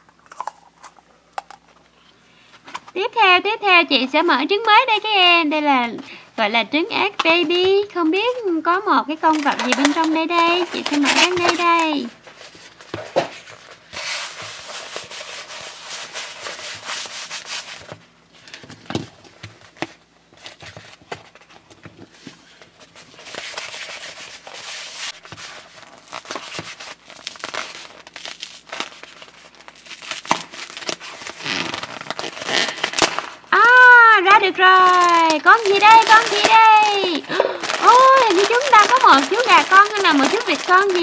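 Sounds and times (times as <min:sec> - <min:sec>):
hands rubbing plastic wrap: 0:09.2 - 0:18.0, 0:20.4 - 0:41.0.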